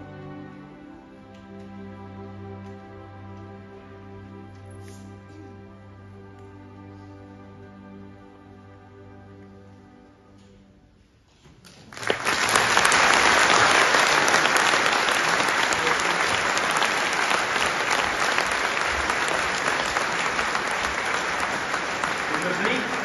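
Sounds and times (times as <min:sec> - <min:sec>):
audience applauding: 0:11.7 - 0:23.0.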